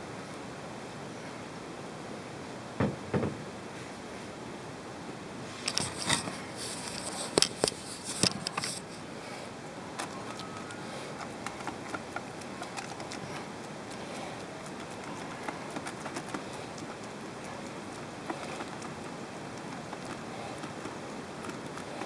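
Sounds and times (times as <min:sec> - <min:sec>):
small ticks: 0:10.0 - 0:22.0.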